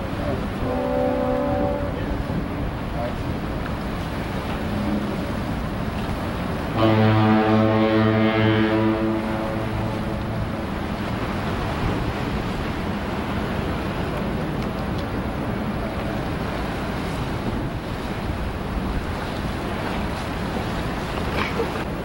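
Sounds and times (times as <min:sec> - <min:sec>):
surf: 0:00.0 - 0:22.0
wind: 0:00.0 - 0:22.0
foghorn deep blast: 0:00.6 - 0:02.6, 0:06.8 - 0:10.9.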